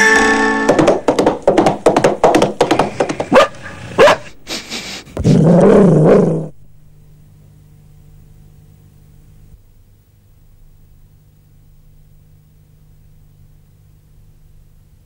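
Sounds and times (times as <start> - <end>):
dog barking loudly: 3.3 - 4.4.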